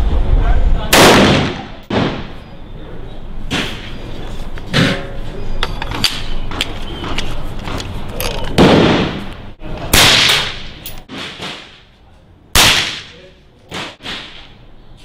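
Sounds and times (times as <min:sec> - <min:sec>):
loud gunshots: 0:00.9 - 0:02.4, 0:08.6 - 0:09.2, 0:09.9 - 0:11.8, 0:12.6 - 0:13.2.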